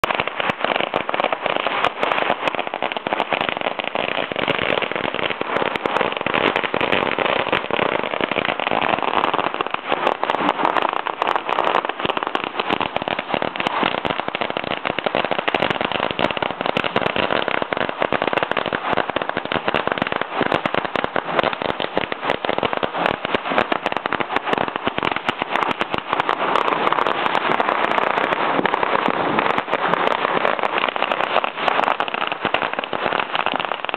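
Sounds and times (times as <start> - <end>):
firecrackers crackling: 0.0 - 33.9.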